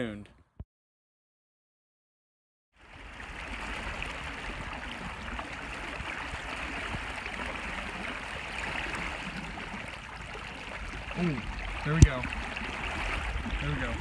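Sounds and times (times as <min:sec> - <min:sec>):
stream rushing over riffles: 0:02.8 - 0:14.0.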